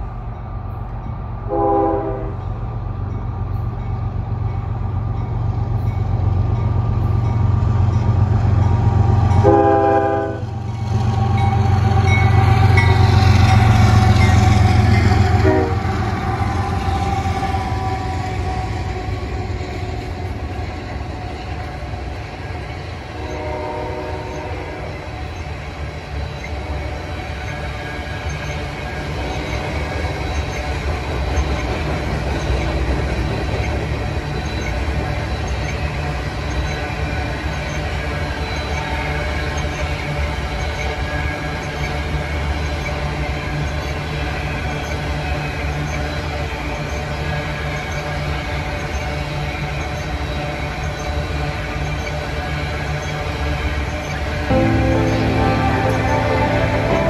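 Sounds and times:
diesel locomotives rumbling: 0.0s - 57.0s
train horn blast: 1.5s - 2.4s, 9.4s - 10.5s, 15.4s - 16.0s, 23.2s - 24.9s, 54.5s - 57.0s
train wheels rumbling and clattering: 2.1s - 57.0s.

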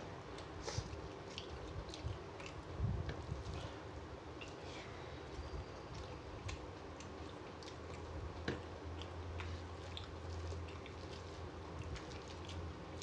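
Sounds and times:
low steady hum: 0.0s - 13.0s
chewing: 0.3s - 13.0s.

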